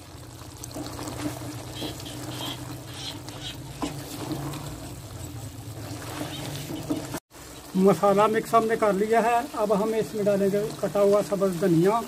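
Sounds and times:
food sizzling: 0.0s - 12.0s
ladle scraping pan: 0.7s - 7.2s.

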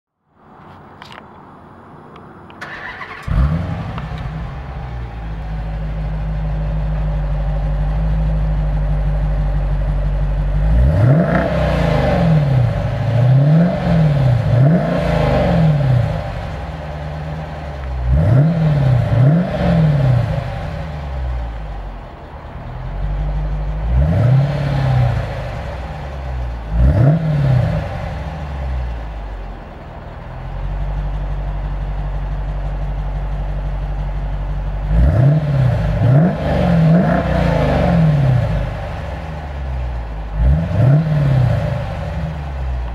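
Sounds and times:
car engine starting and idling: 0.4s - 42.9s
engine revving in throttle blips: 2.6s - 5.6s, 10.5s - 30.0s, 34.8s - 42.9s.

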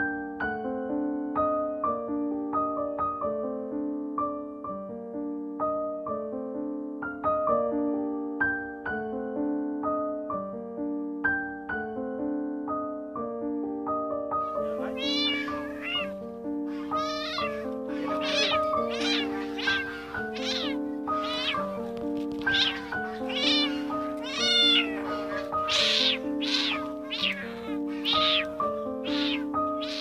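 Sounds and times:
piano music: 0.2s - 30.0s
kitten meowing: 14.4s - 30.0s.

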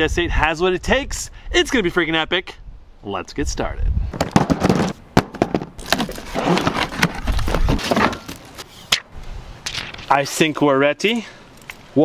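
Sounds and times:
cardboard rustling and scraping: 4.1s - 8.9s
sharp knocks and crackles: 4.2s - 9.1s.

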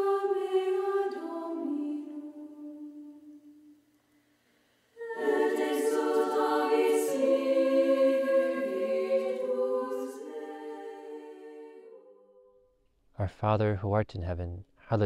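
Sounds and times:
choir singing long notes: 0.0s - 3.8s, 5.0s - 12.6s.

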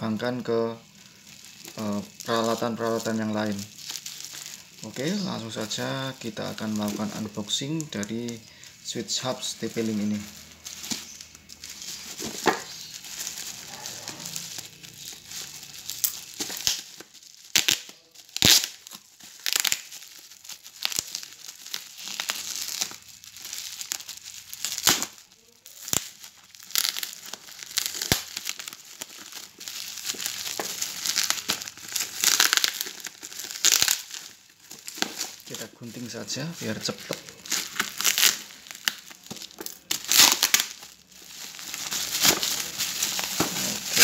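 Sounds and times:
bubble wrap crinkling and snapping: 0.0s - 44.0s.

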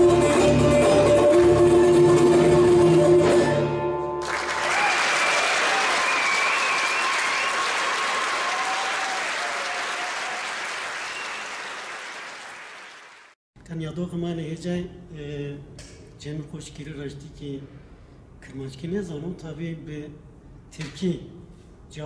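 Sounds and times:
audience applause: 4.2s - 13.4s
audience cheering: 4.2s - 13.4s.

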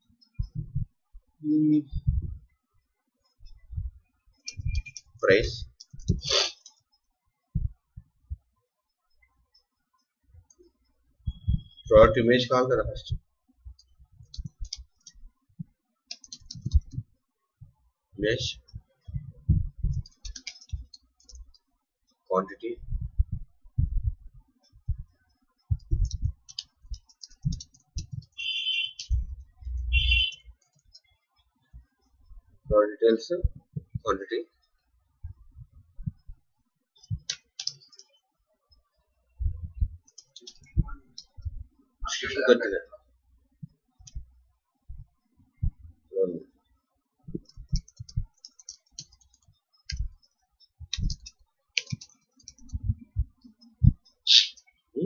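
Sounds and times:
keyboard typing: 3.4s - 7.0s, 13.7s - 15.2s, 16.1s - 17.1s, 18.6s - 21.7s, 24.6s - 31.1s, 37.0s - 38.2s, 39.8s - 41.6s, 47.3s - 54.7s.

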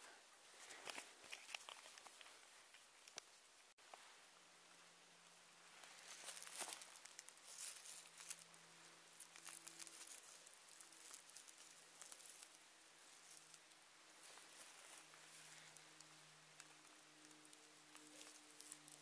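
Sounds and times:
faint steady hum: 0.0s - 19.0s
dry leaves crackling and rustling: 5.8s - 13.6s, 14.2s - 19.0s.

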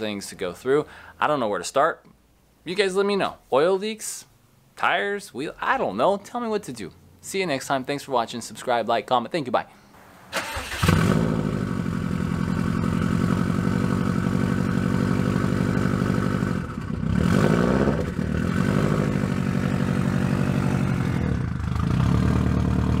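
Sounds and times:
car engine idling and revving: 10.7s - 23.0s.

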